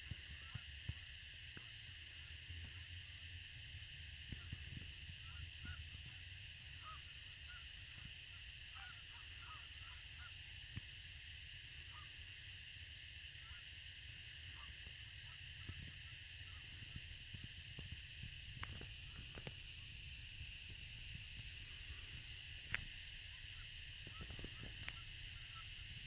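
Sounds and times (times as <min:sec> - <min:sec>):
wind rumble on microphone: 0:00.0 - 0:08.5, 0:14.5 - 0:26.0
high background hiss: 0:00.0 - 0:26.0.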